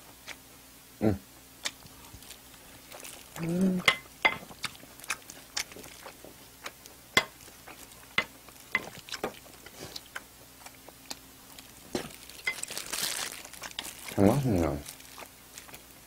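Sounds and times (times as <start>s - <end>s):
chewing: 1.6s - 16.0s
chopsticks tapping ceramic plate: 3.8s - 4.4s, 8.2s - 9.0s.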